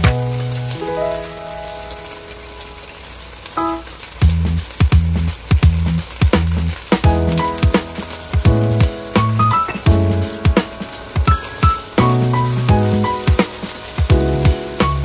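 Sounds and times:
music with steady bass beat: 0:00.0 - 0:00.6, 0:04.2 - 0:15.0
meat sizzling in hot oil: 0:00.0 - 0:15.0.

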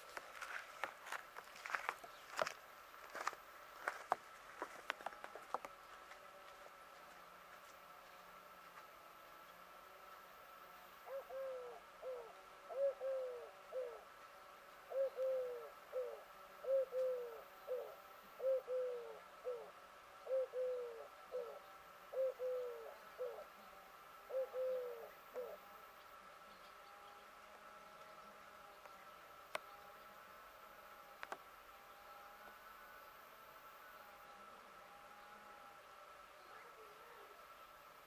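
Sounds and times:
dove cooing: 0:11.0 - 0:14.2, 0:14.8 - 0:23.6, 0:24.2 - 0:25.7, 0:36.4 - 0:37.5.

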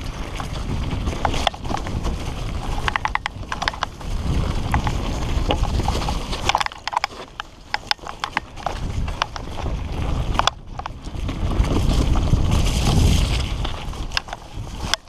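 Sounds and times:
bike clattering and rattling: 0:00.0 - 0:15.0.

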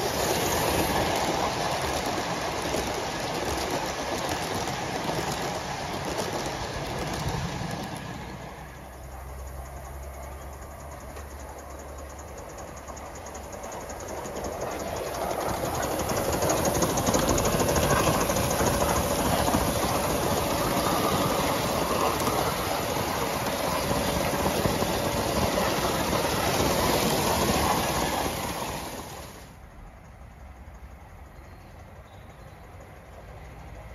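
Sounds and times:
model steam locomotive running: 0:00.0 - 0:33.9
wheels clattering on rails: 0:00.0 - 0:33.9.

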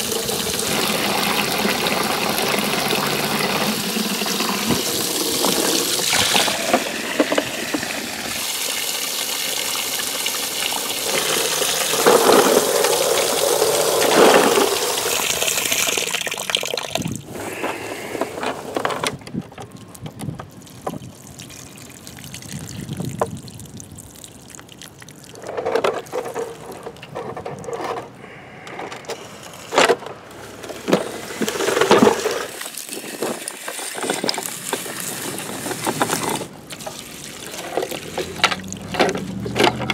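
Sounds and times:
toy trucks clicking and knocking: 0:00.0 - 0:08.4, 0:10.9 - 0:21.0, 0:25.4 - 0:39.9
water spraying and splashing: 0:00.0 - 0:18.8, 0:19.7 - 0:28.4, 0:30.4 - 0:39.9.

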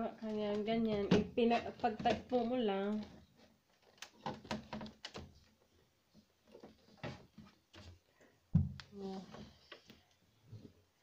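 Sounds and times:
loud knock: 0:08.5 - 0:08.8.

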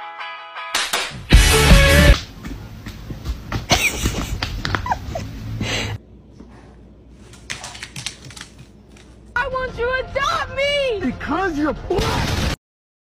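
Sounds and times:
dogs heavy breathing: 0:04.8 - 0:09.4
dogs scuffling: 0:06.4 - 0:09.4.

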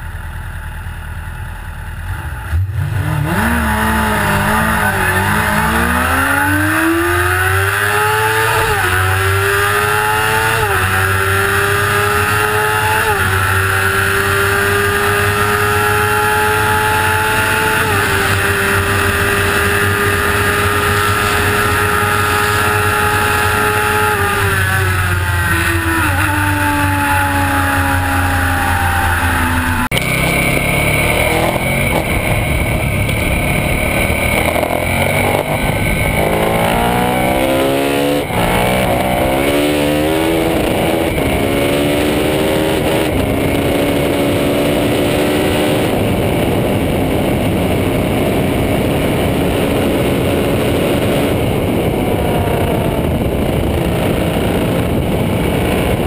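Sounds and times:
motorcycle engine accelerating: 0:00.0 - 0:56.0
motorcycle engine at lower revs: 0:00.0 - 0:56.0
wind rush: 0:29.9 - 0:56.0.

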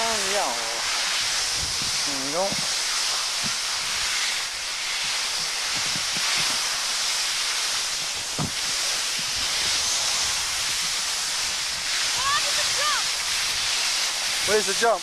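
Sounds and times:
skis sliding on snow: 0:00.0 - 0:15.0
wind rushing across microphone: 0:00.0 - 0:15.0
low thump: 0:08.4 - 0:08.6.

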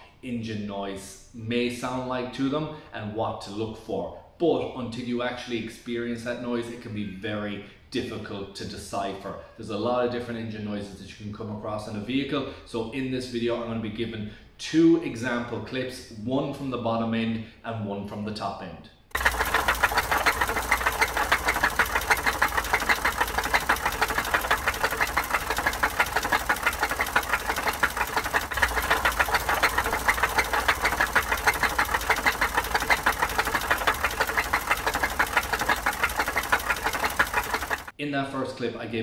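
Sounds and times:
car engine with rod knock: 0:19.2 - 0:37.9.

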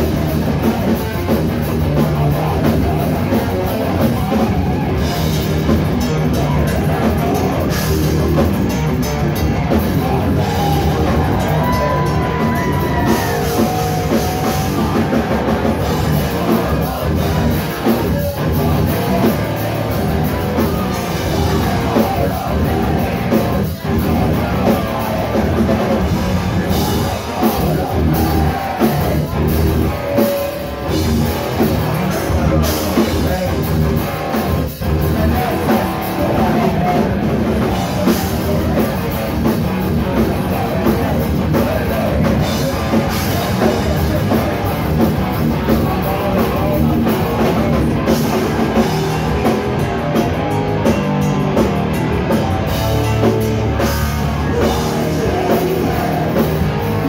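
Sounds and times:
distorted electric guitars: 0:00.0 - 0:57.0
pounding drum kit: 0:00.0 - 0:57.0.

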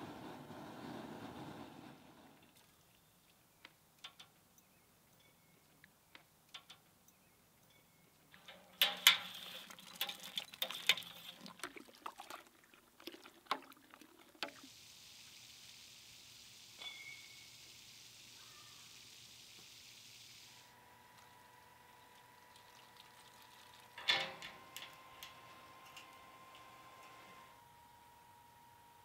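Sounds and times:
liquid sloshing in metal kettle: 0:08.4 - 0:14.7, 0:22.1 - 0:25.3
steady low hiss: 0:14.2 - 0:22.6.

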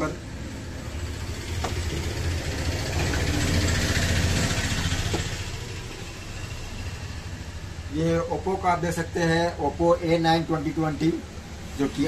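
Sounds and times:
vehicle engine passing: 0:00.0 - 0:09.6.

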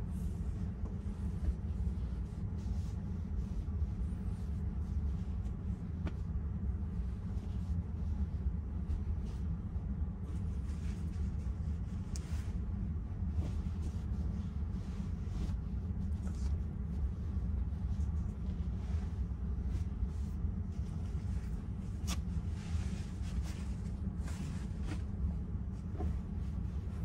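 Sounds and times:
steady low rumble: 0:00.0 - 0:27.0.

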